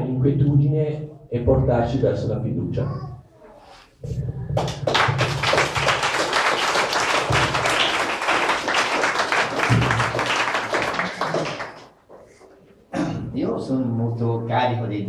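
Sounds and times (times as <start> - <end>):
audience applauding: 4.6 - 12.1.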